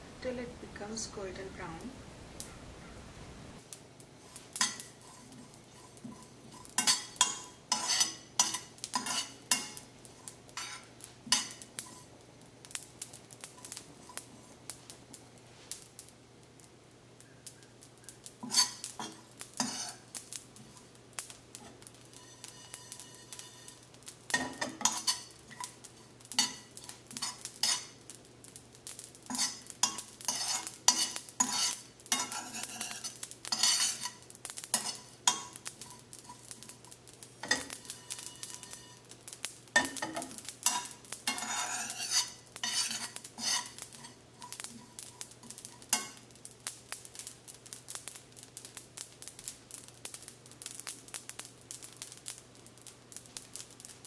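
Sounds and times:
seeds rattling in pan: 3.6s - 54.0s
metal spoon scraping pan: 4.2s - 12.1s, 18.4s - 20.1s, 21.6s - 25.8s, 26.4s - 28.0s, 29.3s - 36.5s, 37.4s - 39.1s, 39.8s - 46.2s.

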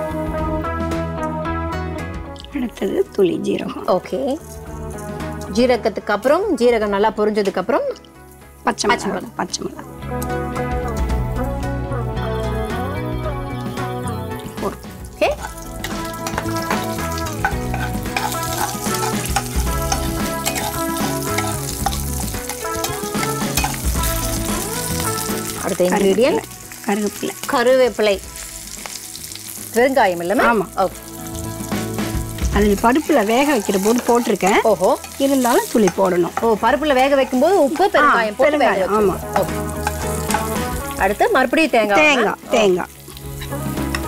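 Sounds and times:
soft background tune: 0.0s - 44.0s
oil sizzling in pan: 2.4s - 11.8s, 13.6s - 44.0s
spatula clicking on pan: 16.2s - 23.8s.

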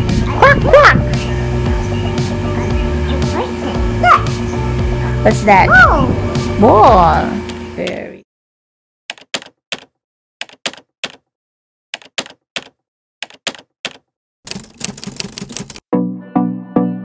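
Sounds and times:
music with regular beat: 0.0s - 7.7s
typewriter key clacks: 9.1s - 11.2s, 12.0s - 15.8s.

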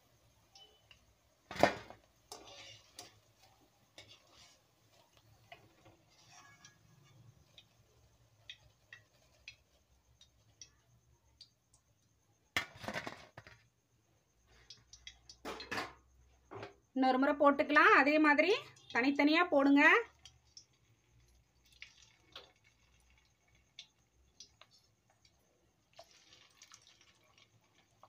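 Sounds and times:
wire strainer scraping metal wok: 2.3s - 7.6s.

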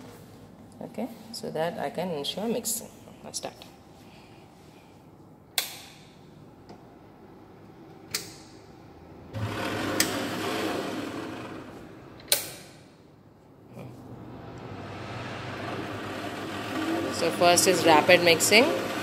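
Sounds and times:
stirrer motor whirring: 9.4s - 12.1s, 14.0s - 19.0s.

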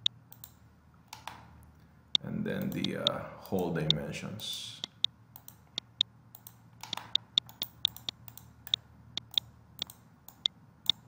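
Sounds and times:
computer mouse clicking: 0.0s - 1.4s, 4.8s - 11.0s.

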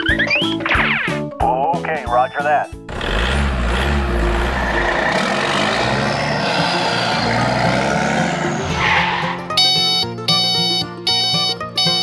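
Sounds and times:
toy truck engine rumble: 2.9s - 9.1s.

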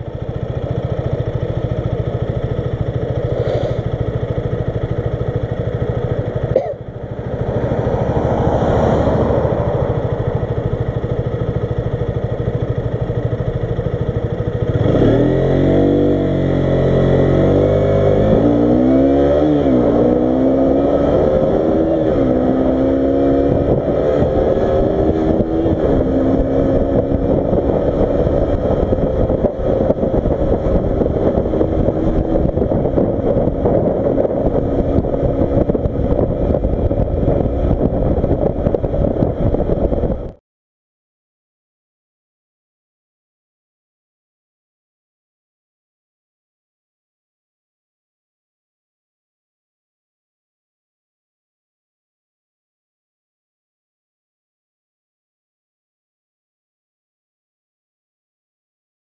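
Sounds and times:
motorcycle engine revving: 0.0s - 40.4s.

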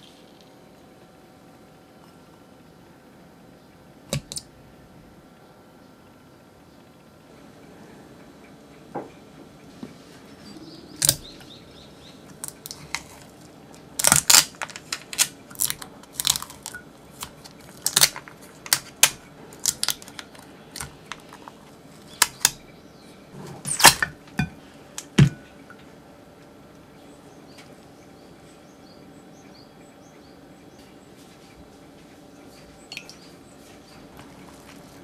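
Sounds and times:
tape peeling off with crackling rips: 11.0s - 11.3s, 12.4s - 21.5s, 22.1s - 22.6s, 23.6s - 24.1s.

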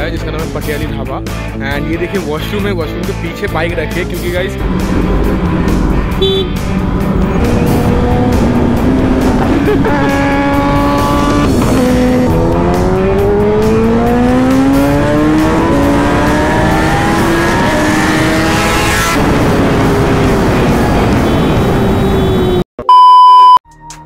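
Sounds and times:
motorcycle accelerating through gears: 4.6s - 22.5s.

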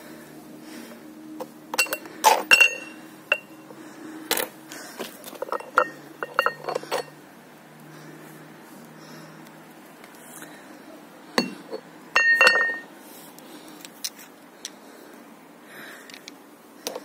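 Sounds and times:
weight plates clinking: 1.7s - 3.6s, 5.4s - 7.1s, 11.4s - 12.9s.

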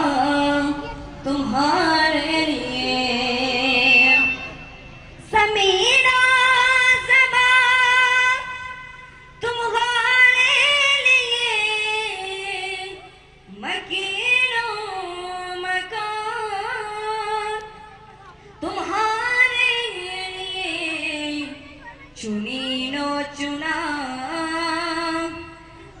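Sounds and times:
person singing unaccompanied: 0.0s - 4.6s, 5.3s - 18.0s, 18.6s - 26.0s.

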